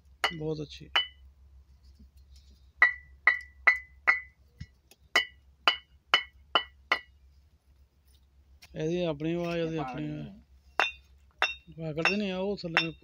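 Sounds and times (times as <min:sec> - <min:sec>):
bricks knocking with ringing tone: 0:00.2 - 0:01.2, 0:02.8 - 0:04.4, 0:05.1 - 0:07.1, 0:10.8 - 0:13.0.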